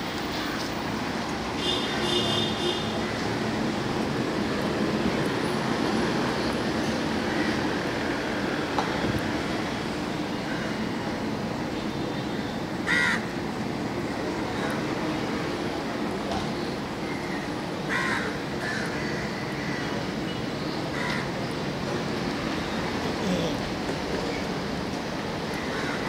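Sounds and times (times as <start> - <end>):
road traffic noise: 0.0 - 26.0
crow cawing: 12.8 - 13.3, 17.9 - 20.0, 20.9 - 21.3, 25.6 - 26.0.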